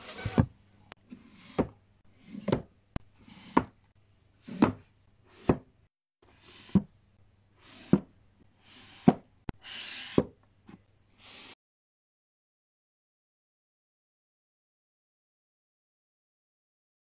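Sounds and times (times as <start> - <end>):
books sliding: 0.0 - 0.6.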